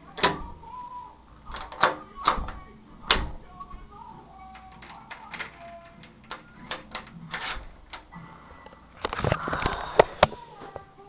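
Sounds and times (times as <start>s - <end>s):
sharp clicks of lock: 1.5s - 3.4s
door chain lock rattling: 4.5s - 8.1s.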